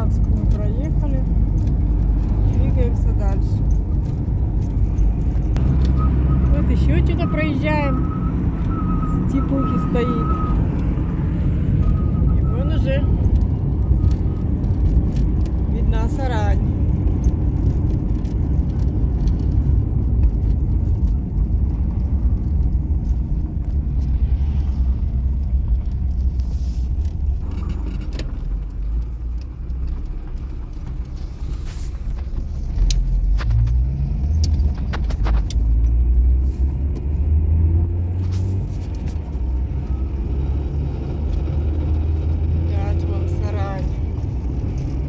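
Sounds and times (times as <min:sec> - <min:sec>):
light clicks and rattles: 0:00.0 - 0:05.6
car engine and tyre rumble: 0:00.0 - 0:45.0.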